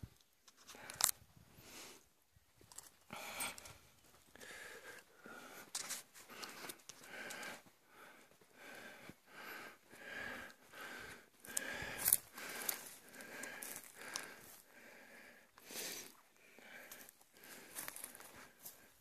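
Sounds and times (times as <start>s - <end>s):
footsteps through dry brush: 11.4s - 14.6s, 15.7s - 19.0s.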